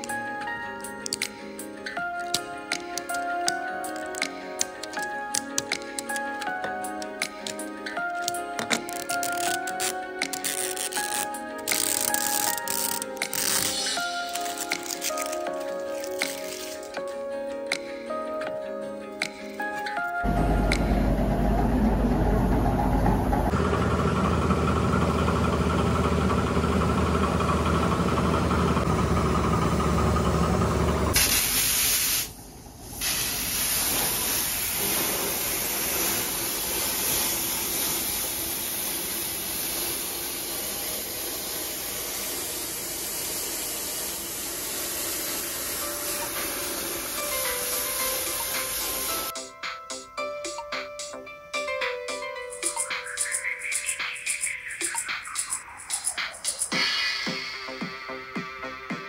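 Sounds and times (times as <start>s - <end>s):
low rumble: 20.3s - 25.4s
sandblasting gun hissing: 31.2s - 32.4s, 33.0s - 49.3s.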